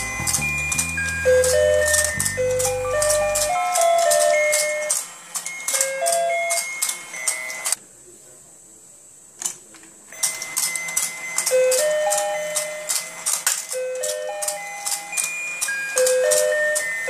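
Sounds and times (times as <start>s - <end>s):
electronic toy tune: 0.0s - 7.8s, 10.2s - 17.0s.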